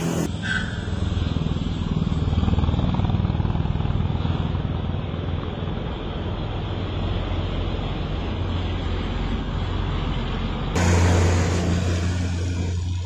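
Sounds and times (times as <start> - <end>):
motorcycle passing: 0.0 - 0.4, 1.0 - 5.4, 10.8 - 13.0
truck engine rumble: 0.0 - 13.0.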